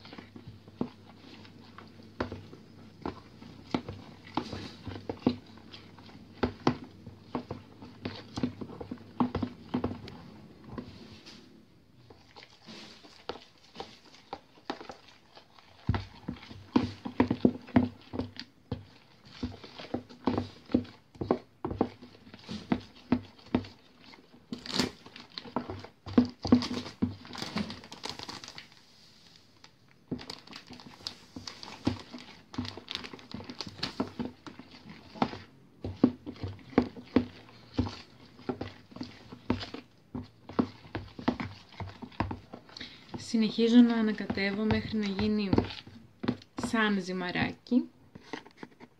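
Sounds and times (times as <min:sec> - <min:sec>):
fork beating thick batter: 0:00.0 - 0:28.7, 0:30.0 - 0:48.9
plastic packet crinkling: 0:26.5 - 0:28.8.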